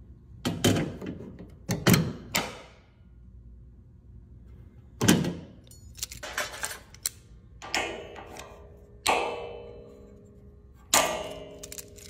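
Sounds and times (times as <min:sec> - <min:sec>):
locking pliers snapping on steel: 0:05.6 - 0:08.5, 0:11.0 - 0:12.0
metal clank with ringing: 0:07.6 - 0:10.3, 0:10.9 - 0:12.0.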